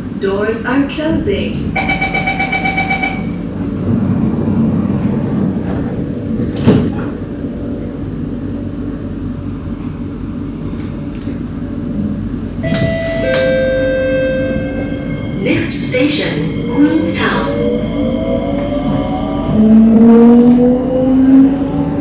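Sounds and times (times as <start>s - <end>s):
stationary train humming: 0.0s - 22.0s
train doors sliding shut: 1.8s - 7.4s, 12.6s - 15.7s.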